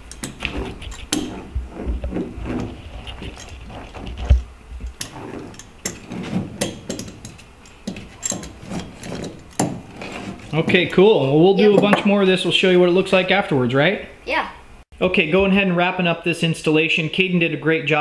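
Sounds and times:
hand roller clicking and scraping: 0.0s - 10.9s.

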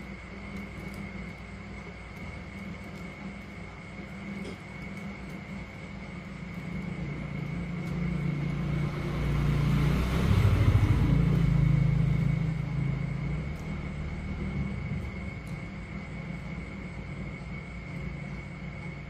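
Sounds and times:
passing vehicle engine rumble: 6.1s - 19.0s.

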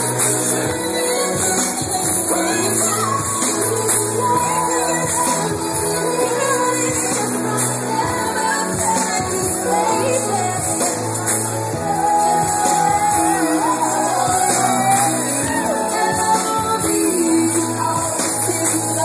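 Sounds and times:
pop song over sound system: 0.0s - 19.0s
crowd shouting along: 12.0s - 16.1s.

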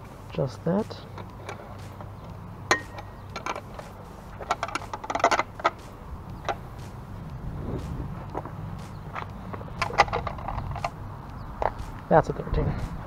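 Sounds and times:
wrench clinking on metal bolt: 2.7s - 3.8s.

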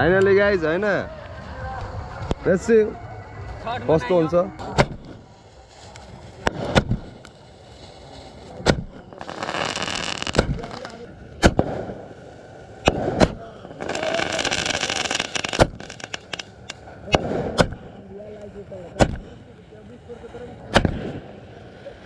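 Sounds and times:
hissing crackle: 0.3s - 22.0s
firecrackers banging: 4.6s - 17.9s.

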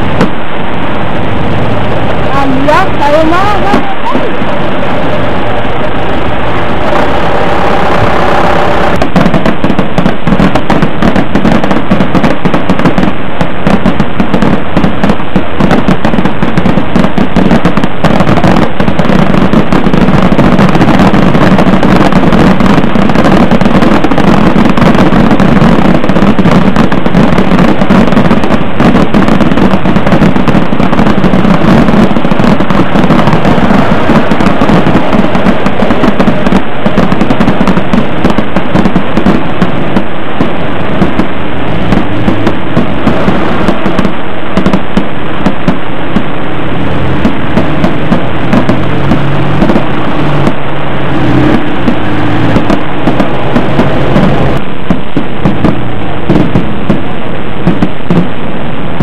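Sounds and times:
fireworks crackling: 0.0s - 59.0s.

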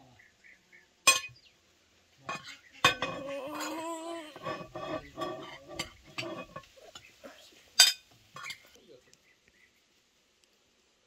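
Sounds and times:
spoons clinking on plates: 2.3s - 3.8s, 4.4s - 7.1s, 7.8s - 8.7s.

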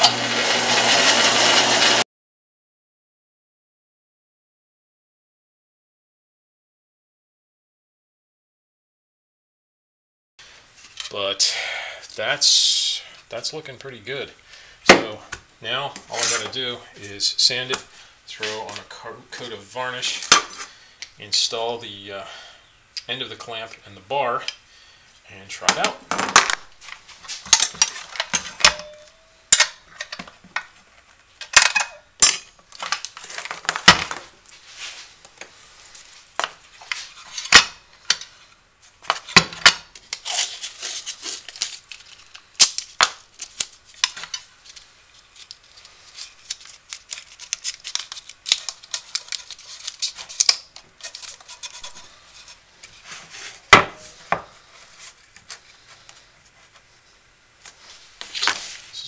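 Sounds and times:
tape being pulled: 40.0s - 54.2s.

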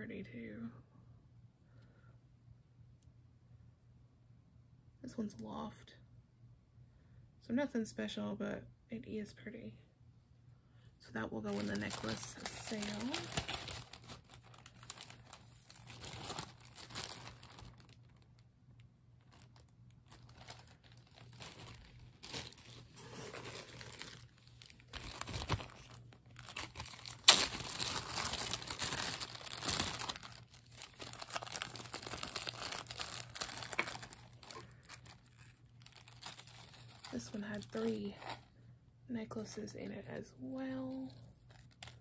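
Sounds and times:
plastic bags crinkling: 11.4s - 18.4s, 19.2s - 38.5s, 41.0s - 42.0s
plastic bag snap: 26.7s - 30.3s, 31.0s - 34.2s.

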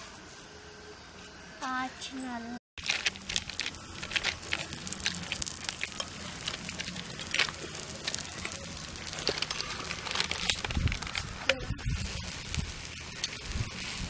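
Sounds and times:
plastic sheet crinkling: 2.8s - 14.0s.

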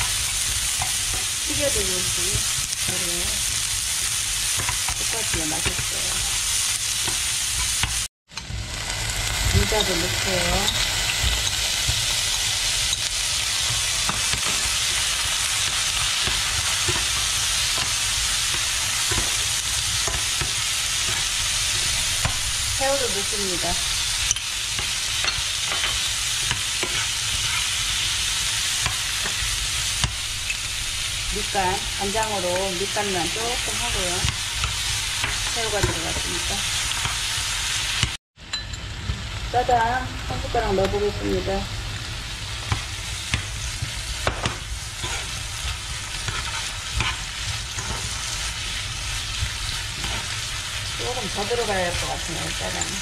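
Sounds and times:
food sizzling in a frying pan: 0.0s - 53.0s
spatula scraping a pan: 24.7s - 30.7s, 43.6s - 53.0s.

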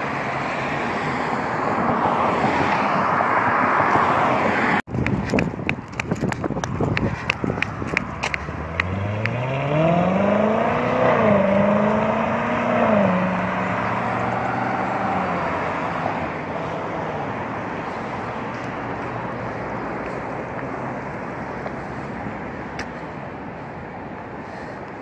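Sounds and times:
traffic hum: 0.0s - 25.0s
car engine accelerating: 6.6s - 16.8s.

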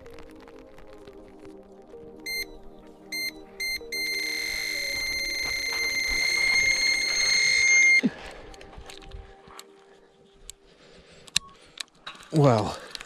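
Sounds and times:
bite alarm beeps and tone: 2.3s - 8.0s.

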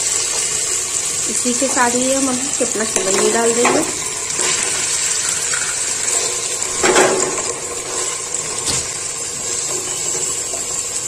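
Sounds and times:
meat sizzling in hot oil: 0.0s - 11.0s
wooden spatula scraping pot: 2.9s - 10.8s.

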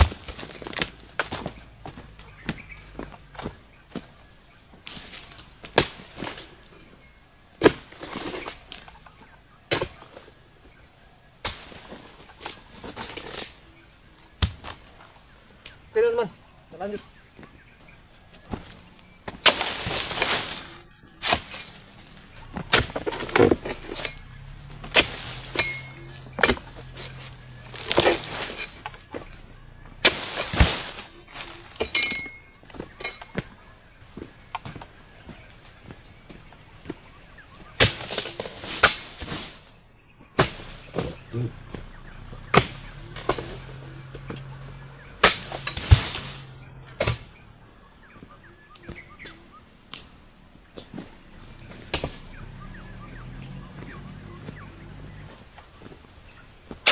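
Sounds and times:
high-pitched insect drone: 12.0s - 38.5s, 39.9s - 56.9s
fronds crashing down: 18.5s - 33.6s, 40.4s - 47.4s
sharp chopping strikes: 22.5s - 28.8s, 30.0s - 31.0s, 40.4s - 44.4s, 45.1s - 47.4s.

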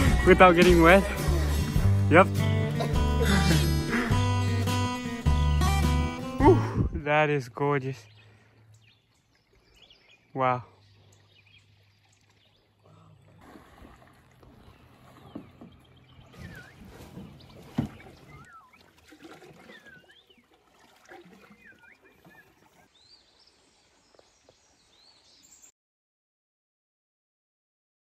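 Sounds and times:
water noise: 0.0s - 25.6s
soft paddle strokes: 13.3s - 22.9s
birds whistling: 14.6s - 18.9s, 19.6s - 20.4s, 21.4s - 25.7s.

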